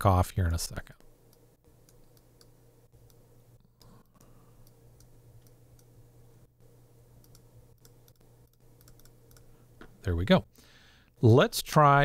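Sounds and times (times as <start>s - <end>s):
faint steady hum: 0.0s - 12.0s
computer mouse clicks: 1.3s - 5.9s, 7.2s - 9.5s.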